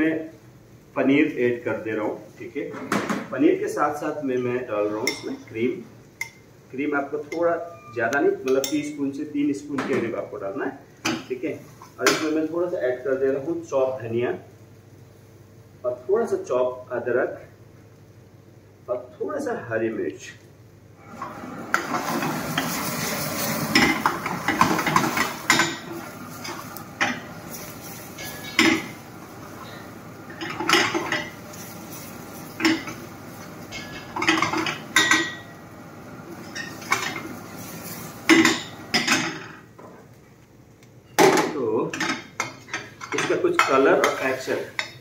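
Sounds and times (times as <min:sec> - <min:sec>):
spoon scraping a pan: 0:21.7 - 0:35.5, 0:42.4 - 0:45.0.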